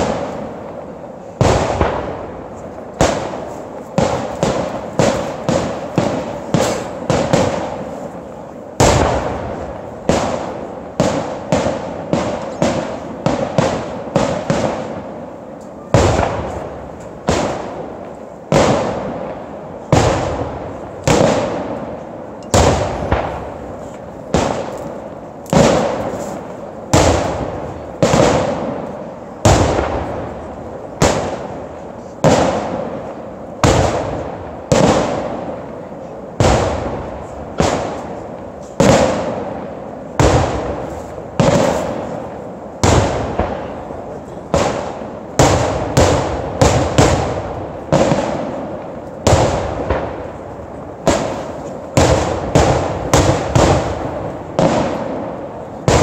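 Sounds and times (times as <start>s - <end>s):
firework shells bursting: 1.3s - 21.8s.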